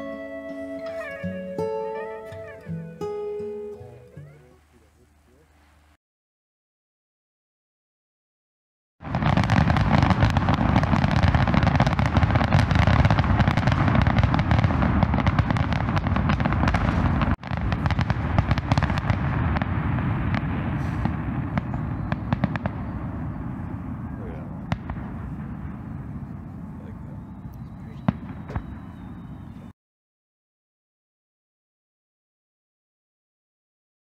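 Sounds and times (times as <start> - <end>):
fireworks booms and crackling pops: 9.0 - 29.7.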